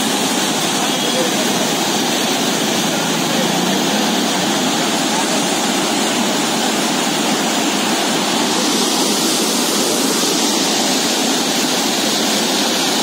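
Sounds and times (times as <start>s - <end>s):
floodwater rushing: 0.0s - 13.0s.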